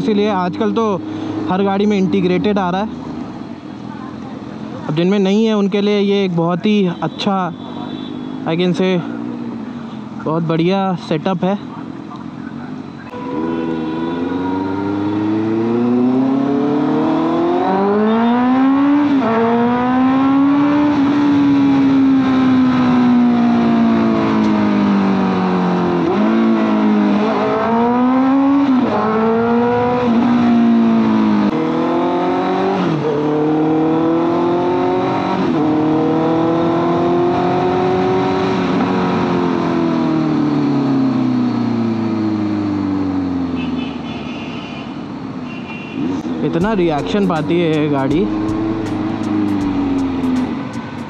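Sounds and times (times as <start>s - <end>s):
motorcycle engine revving: 13.1s - 42.4s, 46.0s - 51.0s.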